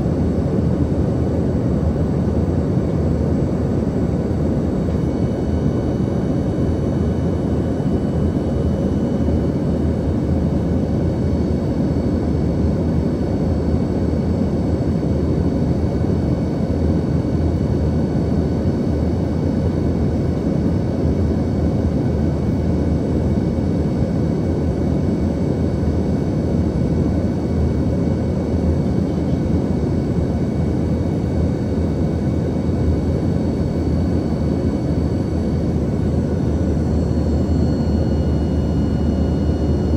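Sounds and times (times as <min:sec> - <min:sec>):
jet engines humming: 0:00.0 - 0:12.2, 0:21.7 - 0:39.9
faint high whine: 0:26.2 - 0:39.9.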